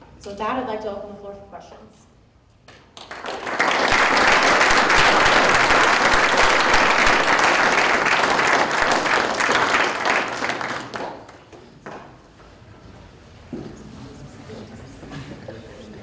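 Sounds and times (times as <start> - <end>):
audience applauding: 2.9 - 12.0.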